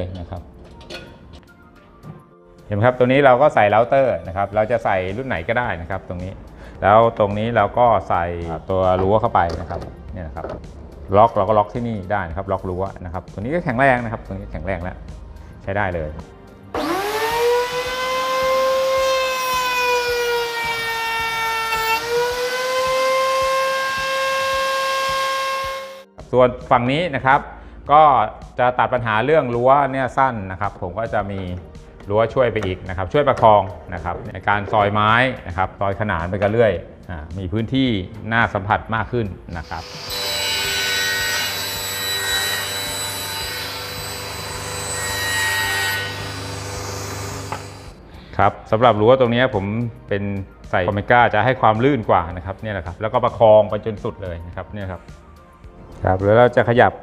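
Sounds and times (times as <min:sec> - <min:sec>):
table saw motor hum: 0:16.7 - 0:26.0, 0:39.6 - 0:48.0
router high whine: 0:16.8 - 0:26.0, 0:39.6 - 0:48.0
saw blade cutting board: 0:16.8 - 0:26.0, 0:39.6 - 0:48.0.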